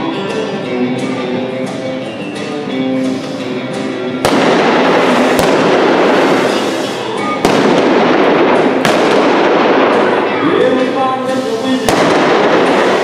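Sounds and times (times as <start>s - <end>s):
music playing: 0.0s - 13.0s
gunshots with long echo: 4.2s - 10.9s, 11.9s - 13.0s.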